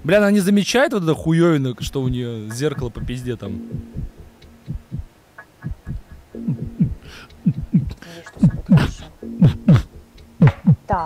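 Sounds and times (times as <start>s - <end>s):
heartbeat thumps: 1.8s - 11.0s
low droning tone: 2.6s - 10.1s.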